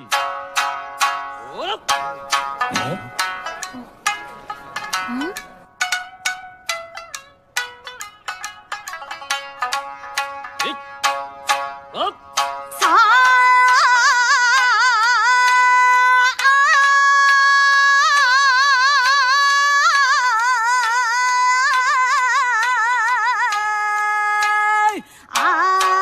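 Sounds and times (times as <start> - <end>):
woman singing with vibrato: 11.9 - 26.0.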